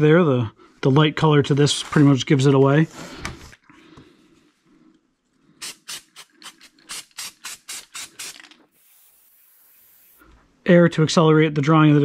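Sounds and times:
aerosol can spraying hissing puffs: 5.6 - 10.2.

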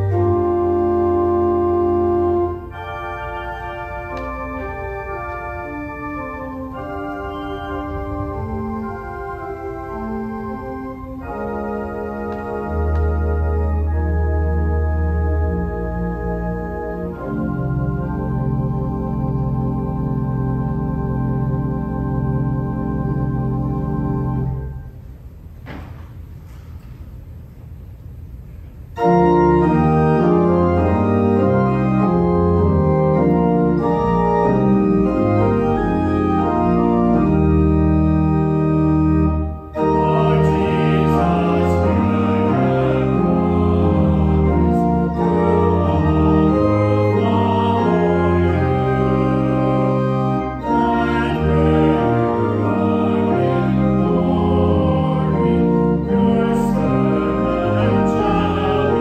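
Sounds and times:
organ playing sustained chords: 0.0 - 25.6, 28.3 - 59.0.

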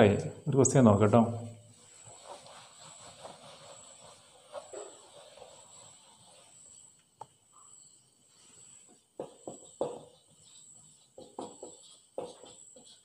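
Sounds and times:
marker writing on whiteboard: 1.7 - 7.8, 8.5 - 13.0.

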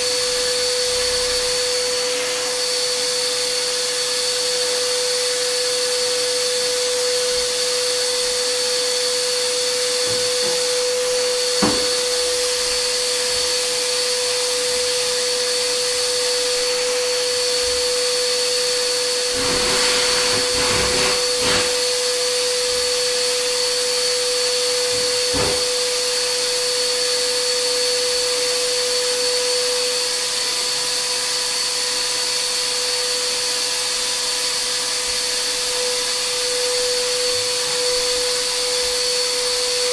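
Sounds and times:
knock: 11.6 - 11.9.

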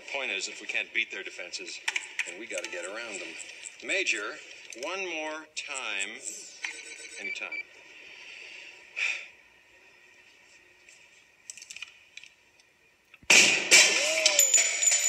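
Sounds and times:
pistol shot with ringing: 13.3 - 14.8.

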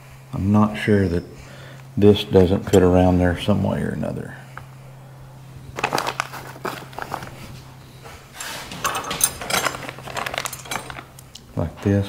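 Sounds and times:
steady low hum: 0.0 - 12.0
small metal parts clinking: 8.3 - 11.5.

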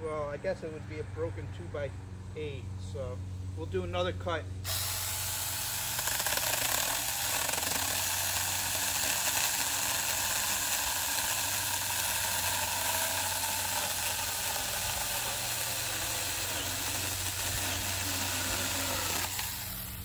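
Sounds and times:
electric chainsaw cutting wood: 4.7 - 20.0.

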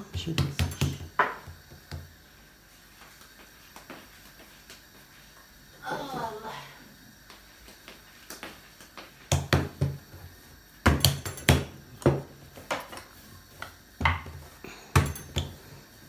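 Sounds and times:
rolling pin knocking on wooden board: 0.2 - 2.1.

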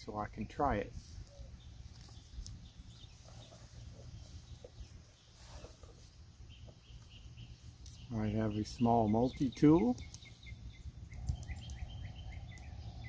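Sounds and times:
faint bird calls: 1.1 - 13.0.

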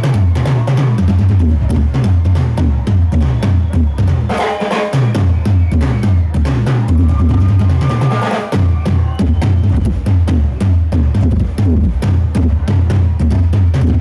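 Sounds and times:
bass line: 0.0 - 14.0
kick and snare drums: 0.0 - 14.0
rock band playing live: 0.0 - 14.0.

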